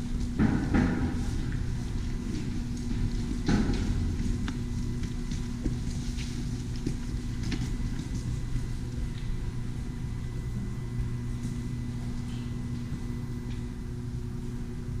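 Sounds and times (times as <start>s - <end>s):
footsteps: 0.0s - 9.6s
ventilation machinery hum: 0.0s - 15.0s.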